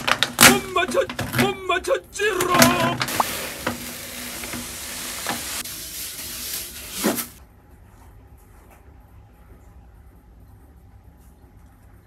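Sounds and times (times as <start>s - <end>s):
cat litter pouring into box: 2.5s - 7.4s.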